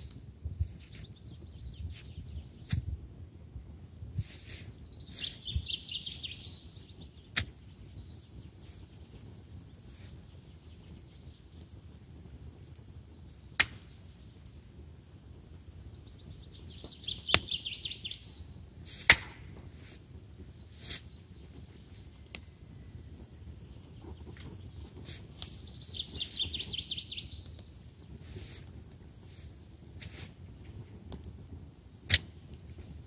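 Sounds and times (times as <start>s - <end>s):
campfire crackling and popping: 0.0s - 33.0s
bird singing trilled phrases: 4.7s - 8.5s, 16.0s - 18.6s, 25.5s - 27.6s.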